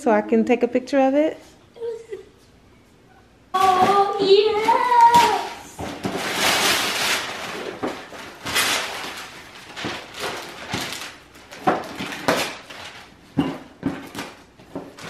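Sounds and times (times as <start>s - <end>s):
wrapping paper rustling and tearing: 3.6s - 15.0s.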